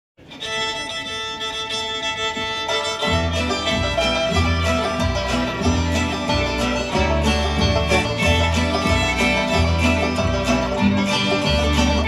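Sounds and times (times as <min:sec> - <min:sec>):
bluegrass string band: 0:00.2 - 0:12.0
fiddle playing: 0:00.2 - 0:12.0.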